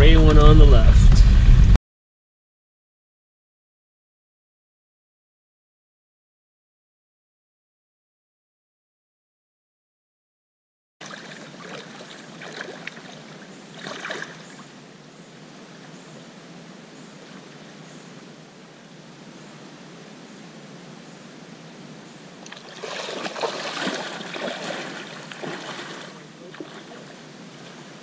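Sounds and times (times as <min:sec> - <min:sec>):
feet splashing in shallow water: 0:11.0 - 0:14.7, 0:22.4 - 0:28.0
water washing: 0:11.0 - 0:14.8, 0:22.4 - 0:28.0.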